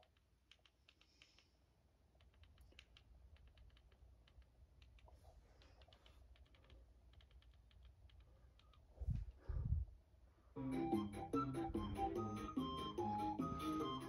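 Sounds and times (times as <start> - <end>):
faint irregular clicks: 0.0 - 8.9.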